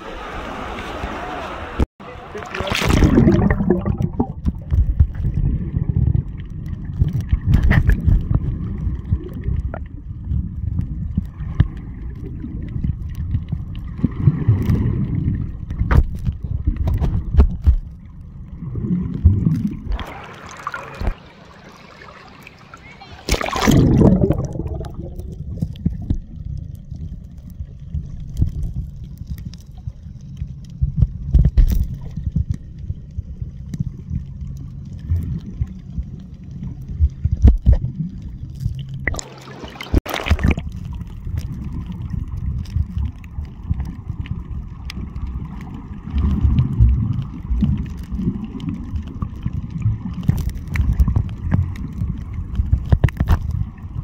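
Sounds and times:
rush of water: 0.0 - 26.2, 33.6 - 54.0
low underwater rumble: 2.1 - 54.0
small clicks and knocks: 50.1 - 53.6.

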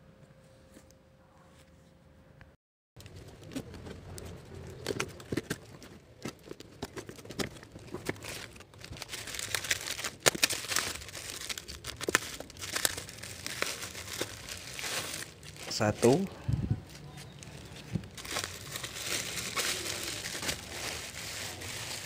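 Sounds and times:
bubble wrap crinkling: 3.0 - 22.0
packing tape slit: 7.0 - 15.8.

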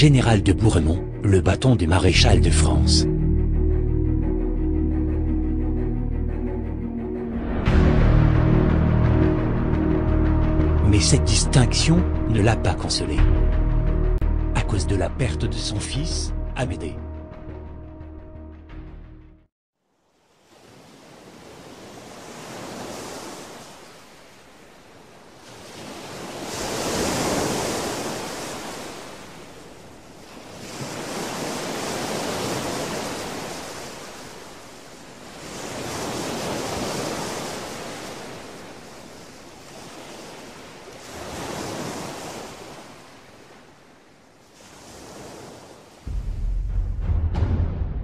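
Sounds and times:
sea waves washing in: 20.2 - 47.2.

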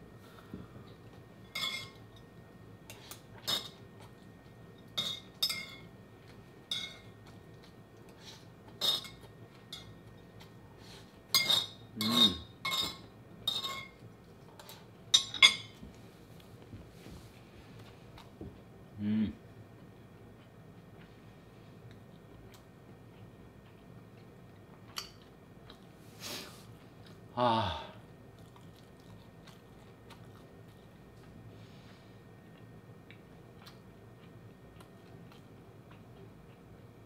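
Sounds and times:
cutlery clinking on a dish: 11.4 - 14.0.

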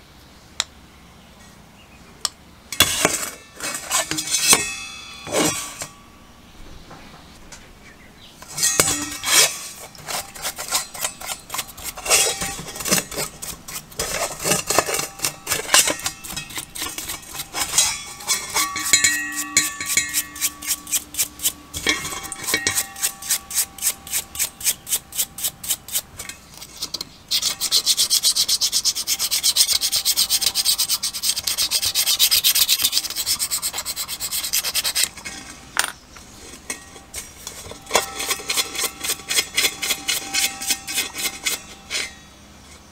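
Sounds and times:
brush scrubbing metal in liquid: 8.5 - 35.4, 36.7 - 42.2.

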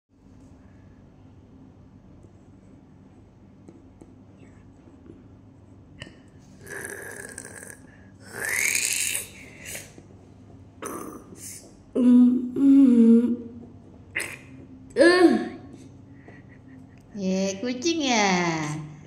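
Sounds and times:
person groaning: 6.6 - 9.8, 10.8 - 13.5, 15.0 - 15.8.

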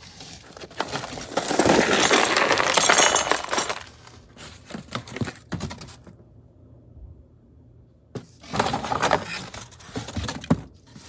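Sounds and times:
packing material crinkling: 0.0 - 5.6.

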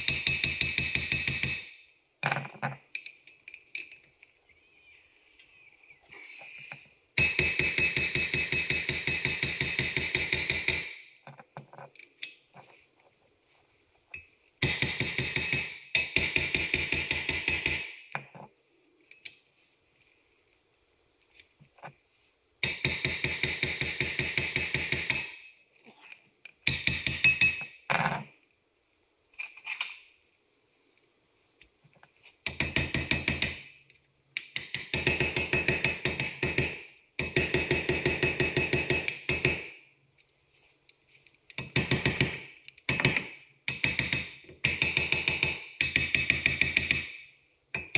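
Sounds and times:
impact wrench hammering: 0.0 - 1.8, 7.2 - 11.1, 14.6 - 18.1, 22.6 - 25.4, 26.7 - 27.8, 32.5 - 33.7, 34.4 - 39.8, 41.6 - 47.9.

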